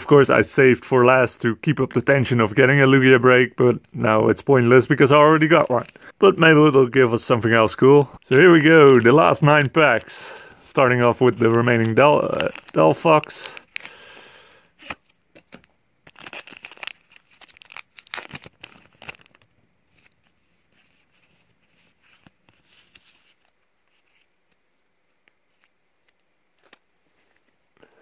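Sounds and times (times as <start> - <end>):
cards clicking and rustling: 8.2 - 10.4, 11.1 - 14.1, 25.2 - 27.6
foil wrapper tearing and crinkling: 8.3 - 10.5, 11.2 - 14.0, 16.0 - 19.5.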